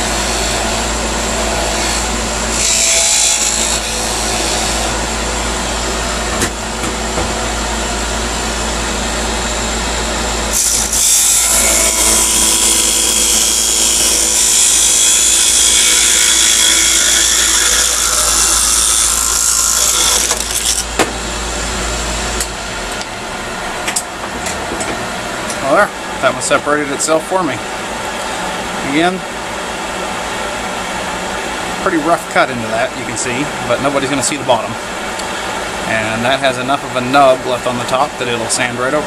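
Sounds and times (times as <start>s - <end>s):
wood lathe humming: 0.0s - 6.2s, 6.8s - 26.2s
tool cutting spinning wood: 9.8s - 24.7s.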